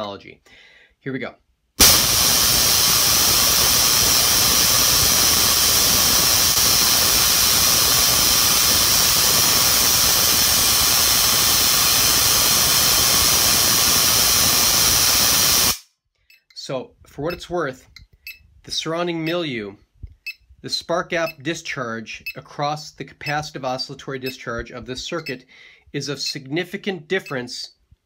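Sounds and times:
electric spark gap arcing hiss: 1.8 - 15.9.

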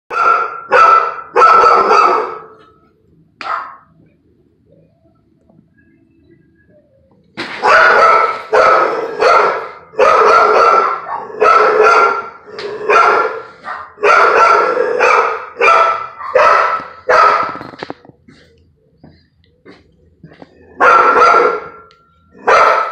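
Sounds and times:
dog barking: 0.1 - 2.6, 3.4 - 3.9, 7.6 - 17.7, 20.7 - 21.8, 22.4 - 22.9.

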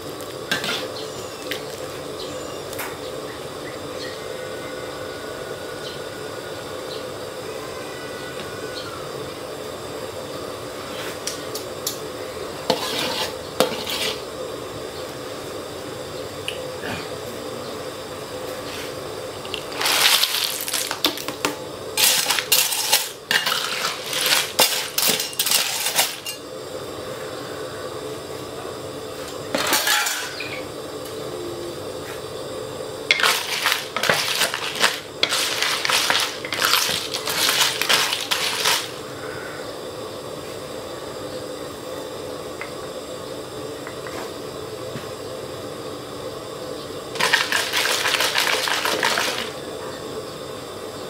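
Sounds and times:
shells clattering in metal wok: 19.5 - 21.3, 22.0 - 26.4, 29.6 - 30.4, 33.1 - 39.0, 47.2 - 49.6.

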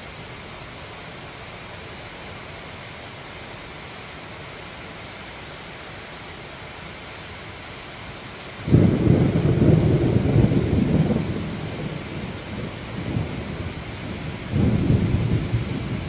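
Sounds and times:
steady rain: 0.0 - 16.0
thunder rumbling: 8.7 - 16.0.

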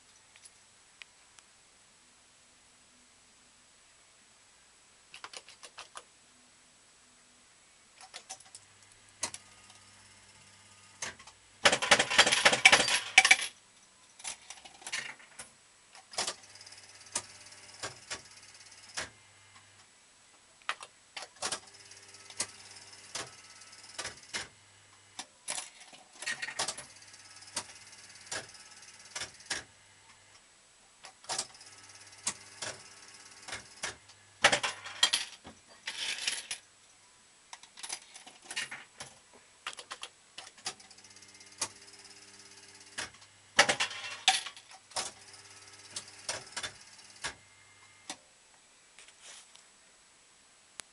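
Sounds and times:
slot machine reels clicking: 9.2 - 13.5, 16.1 - 19.1, 21.4 - 24.5, 26.2 - 29.7, 31.3 - 35.4, 40.6 - 47.4.

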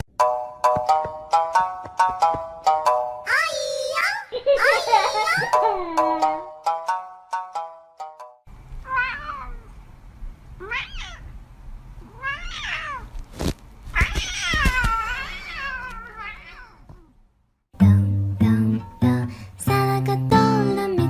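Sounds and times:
cat meowing: 8.8 - 9.7, 10.6 - 11.3, 12.0 - 13.1, 13.9 - 17.2.

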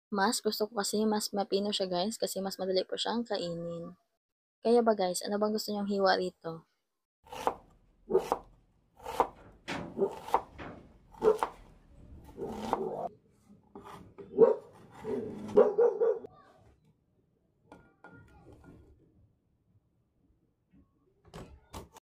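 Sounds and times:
dog barking: 8.1 - 8.4, 11.2 - 11.6, 14.3 - 16.3.

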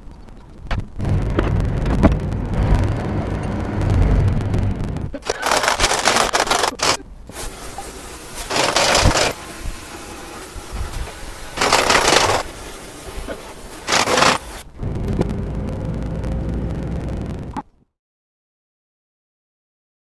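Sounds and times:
impact wrench running: 5.3 - 7.0, 8.5 - 9.4, 11.6 - 12.5, 13.9 - 14.6.

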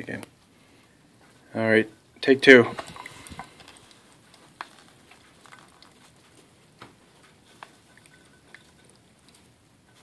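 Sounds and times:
coffee dripping into a pot: 2.2 - 10.0.

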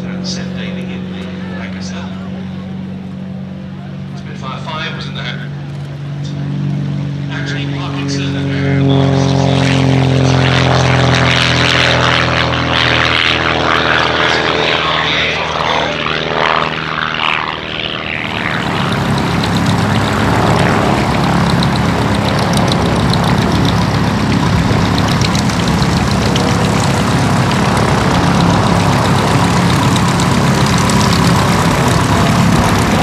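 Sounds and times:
propeller aircraft engine: 0.0 - 33.0.

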